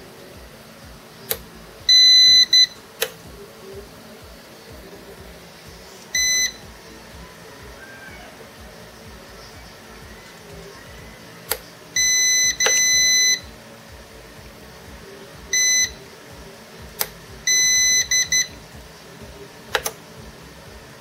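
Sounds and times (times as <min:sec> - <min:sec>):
power button clicks: 0:01.2 - 0:03.2, 0:11.4 - 0:13.4, 0:19.7 - 0:20.0
high-pitched electronic beeps: 0:01.3 - 0:03.1, 0:05.7 - 0:08.3, 0:09.1 - 0:13.6, 0:15.4 - 0:16.1, 0:17.3 - 0:18.9.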